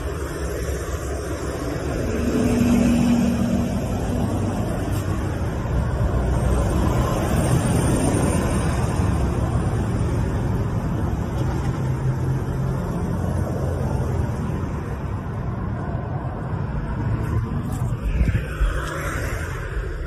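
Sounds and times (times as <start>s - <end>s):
cars passing on road: 0.0s - 20.0s.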